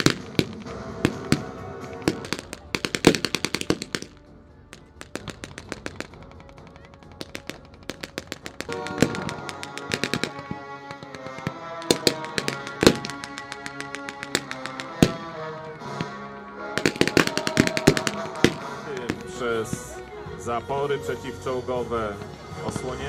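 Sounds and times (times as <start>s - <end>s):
rapid blank gunfire: 0.0s - 15.4s, 16.8s - 19.4s
loud bangs: 0.0s - 20.2s
background music with sustained chords: 0.0s - 23.0s.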